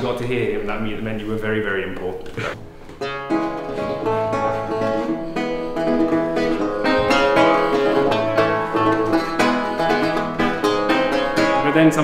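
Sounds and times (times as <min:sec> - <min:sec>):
solo lute plucked: 0:03.0 - 0:12.0.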